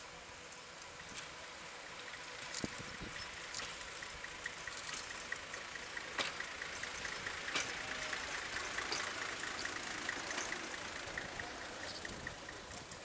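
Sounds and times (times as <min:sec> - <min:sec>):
diesel engine running: 0:00.0 - 0:13.0
fast steady ticking: 0:02.0 - 0:13.0
sharp clacks: 0:03.6 - 0:13.0.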